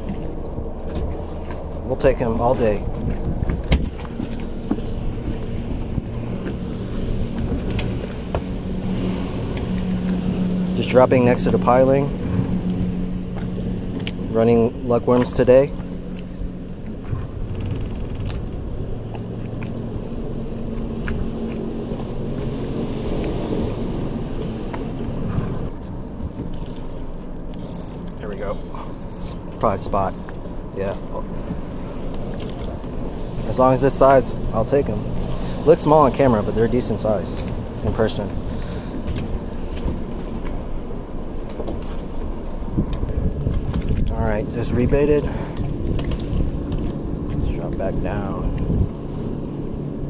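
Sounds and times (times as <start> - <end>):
boat engine humming: 0.0 - 50.0.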